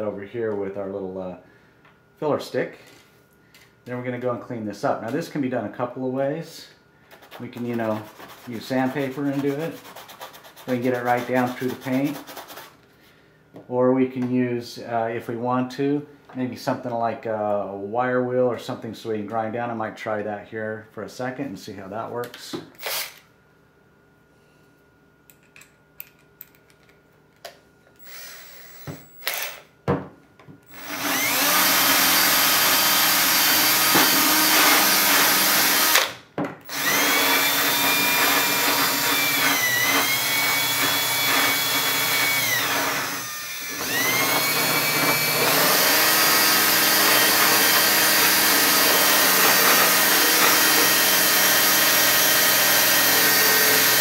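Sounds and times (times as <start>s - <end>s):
cordless drill wire wheel grinding: 30.7s - 54.0s.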